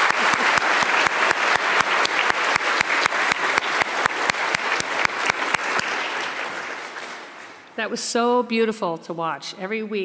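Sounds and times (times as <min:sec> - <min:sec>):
person clapping close: 0:00.0 - 0:07.6
congregation applauding: 0:00.0 - 0:07.8.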